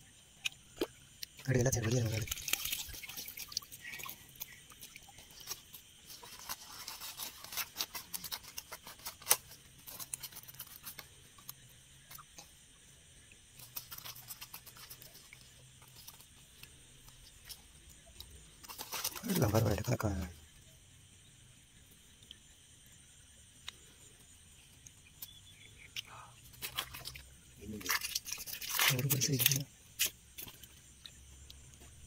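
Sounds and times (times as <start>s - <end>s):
nylon net rustling: 1.4s - 11.0s, 18.6s - 20.3s, 26.6s - 30.1s.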